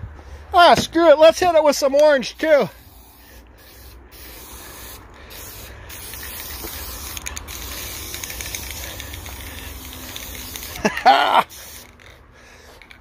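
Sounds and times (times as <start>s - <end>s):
spray can hissing: 2.2s - 12.1s.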